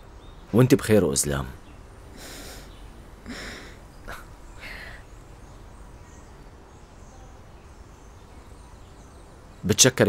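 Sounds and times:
soft breaths: 2.0 - 5.5.

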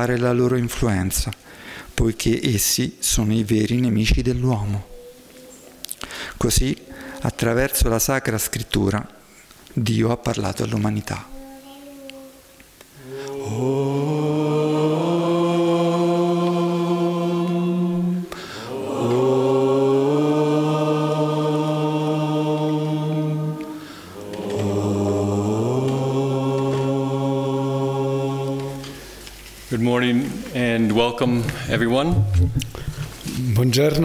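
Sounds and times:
breath: 1.4 - 2.0, 6.0 - 7.2, 18.3 - 18.7, 23.7 - 24.2, 32.7 - 33.2.

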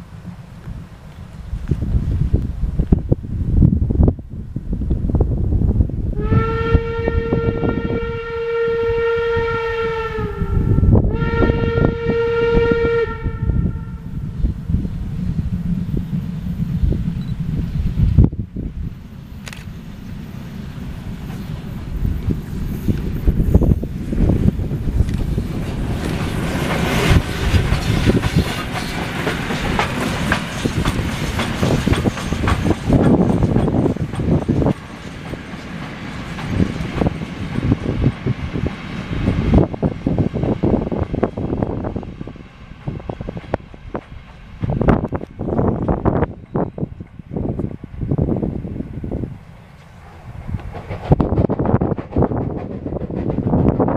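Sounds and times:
wind rumble on microphone: 0.0 - 53.9
steam locomotive whistle blasts: 6.2 - 14.2
train wheels clattering over rail joints: 21.0 - 40.7, 49.7 - 53.9.

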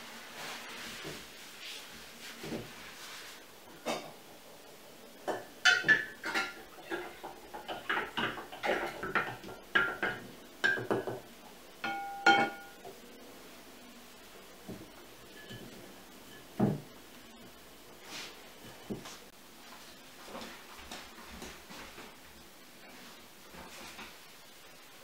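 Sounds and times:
ringing glass clink: 11.8 - 12.8.

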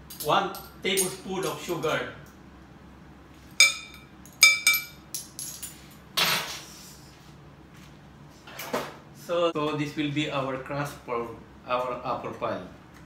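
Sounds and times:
spoon clinking glass bowl: 3.6 - 5.0.

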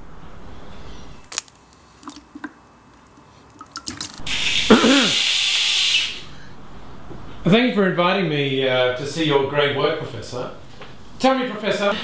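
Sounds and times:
gush of running water: 3.7 - 6.1.

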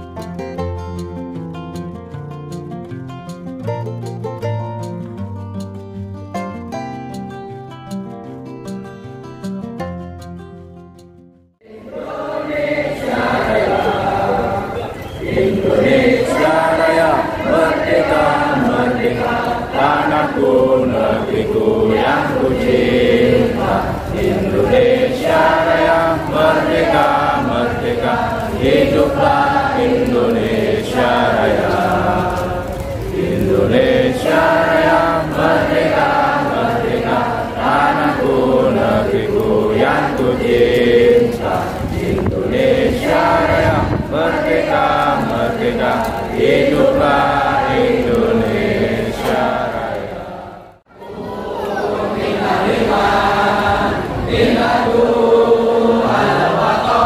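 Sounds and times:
men chanting in unison over loudspeakers: 11.6 - 57.0.

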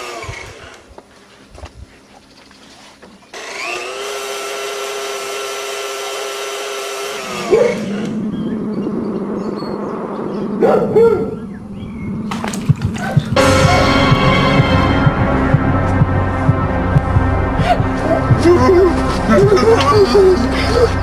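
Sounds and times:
electric motor whining and grinding: 0.0 - 1.0, 3.3 - 8.3.

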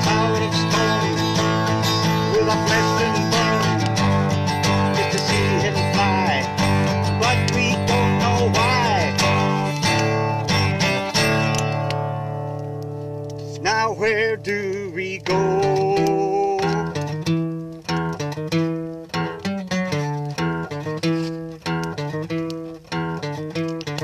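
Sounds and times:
man singing: 0.0 - 9.7, 13.5 - 17.0
acoustic guitar strumming: 0.0 - 24.0.

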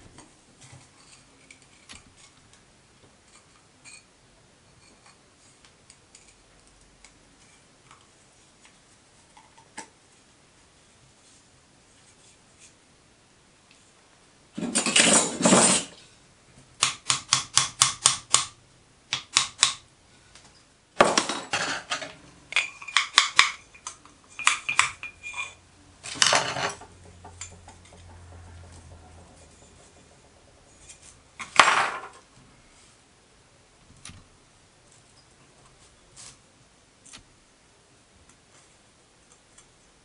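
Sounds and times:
metal parts scraping: 14.6 - 16.0, 21.0 - 32.2
metallic rings: 21.5 - 31.2.

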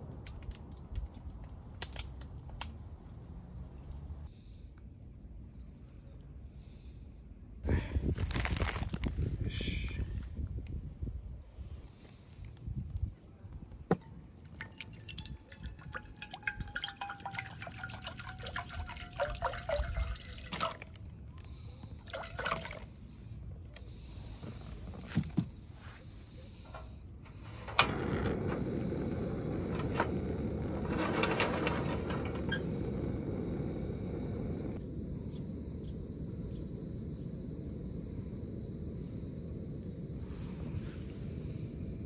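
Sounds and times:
water pouring into a saucepan: 14.4 - 21.2, 22.1 - 23.1
gas burner hissing: 14.6 - 42.0.

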